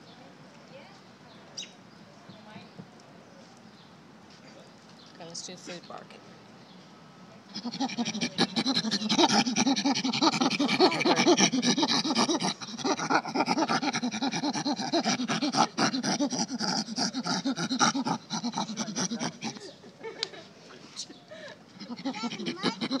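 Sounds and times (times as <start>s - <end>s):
chimpanzee barks from speaker: 7.5s - 16.4s.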